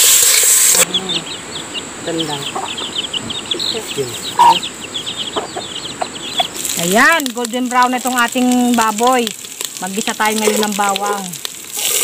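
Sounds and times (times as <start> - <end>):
meat sizzling in hot oil: 0.0 - 0.9, 5.7 - 12.0
chickens clucking: 0.8 - 8.8, 10.2 - 11.4.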